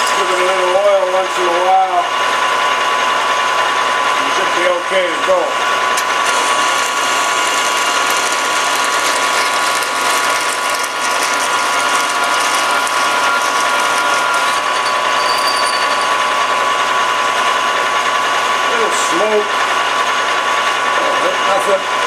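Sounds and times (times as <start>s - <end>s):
lathe machine whine: 0.0s - 22.0s
drill cutting hiss: 5.2s - 19.6s.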